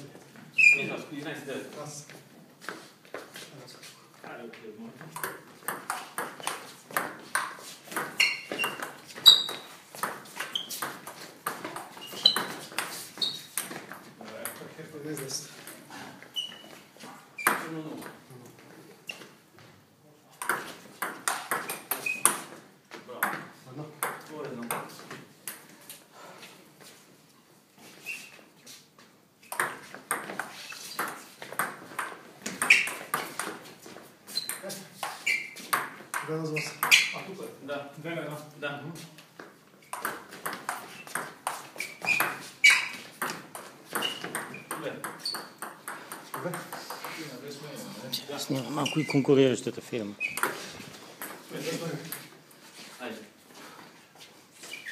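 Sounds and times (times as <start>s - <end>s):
sneakers squeaking on floor: 0.4s - 1.1s, 5.2s - 14.2s, 15.5s - 17.8s, 19.0s - 19.7s, 20.4s - 22.7s, 27.8s - 28.8s, 29.4s - 37.3s, 39.4s - 47.2s, 48.6s - 49.4s, 50.0s - 52.9s, 53.6s - 54.9s
ball bouncing on table: 5.2s - 12.9s, 20.4s - 22.5s, 23.2s - 24.9s, 29.5s - 33.6s, 39.9s - 47.2s.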